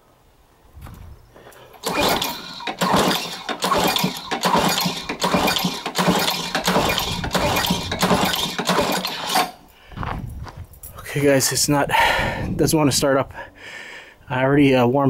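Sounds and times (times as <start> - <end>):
lawnmower engine firing roughly: 1.7 - 9.7.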